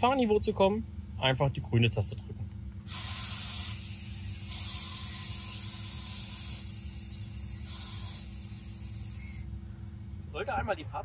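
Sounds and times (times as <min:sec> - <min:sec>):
truck air suspension hissing: 0:02.8 - 0:09.9.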